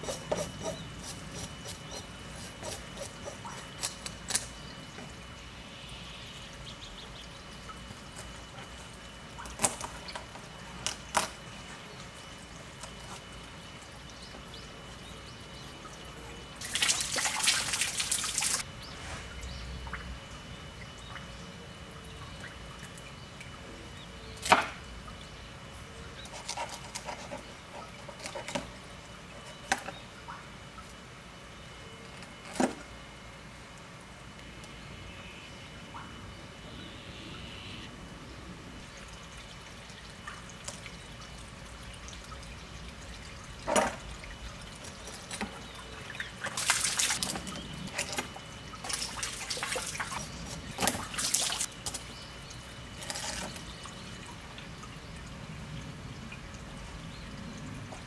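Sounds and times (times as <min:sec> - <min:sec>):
knife scraping through fish: 0:00.0 - 0:04.0.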